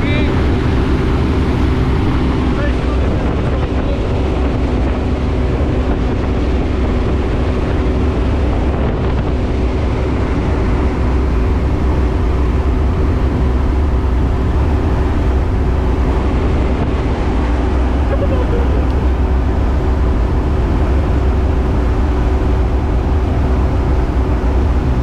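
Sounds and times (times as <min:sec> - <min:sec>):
propeller plane engine droning: 0:00.0 - 0:25.0.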